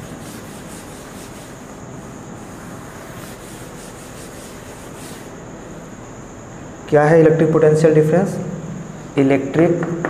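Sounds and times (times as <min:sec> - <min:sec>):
duster rubbing chalkboard: 0:00.0 - 0:05.4.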